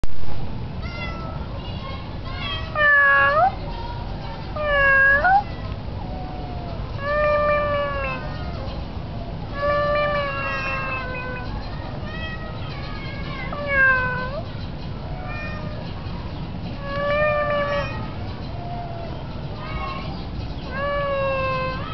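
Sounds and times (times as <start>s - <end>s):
cat meowing: 2.7s - 3.6s, 4.6s - 8.6s, 9.5s - 12.5s, 13.5s - 14.4s, 15.2s - 15.8s, 16.8s - 19.1s, 20.7s - 21.9s.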